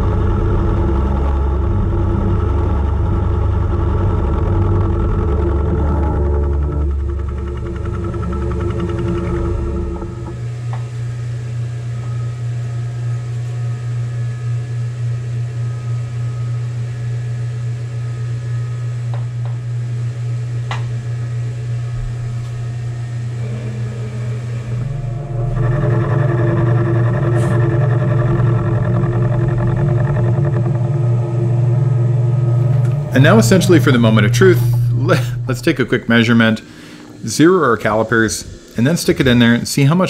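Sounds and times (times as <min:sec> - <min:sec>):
milling machine cutting metal: 0:20.7 - 0:40.0.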